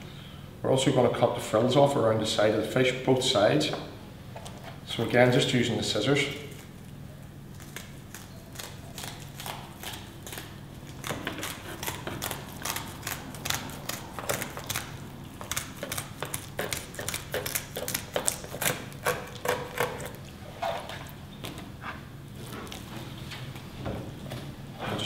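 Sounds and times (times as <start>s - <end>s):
kitchen scissors snipping fish fins: 7.7s - 20.2s.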